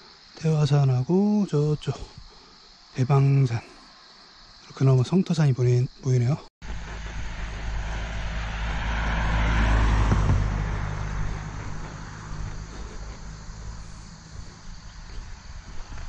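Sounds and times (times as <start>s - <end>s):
engine passing by: 6.6s - 16.0s.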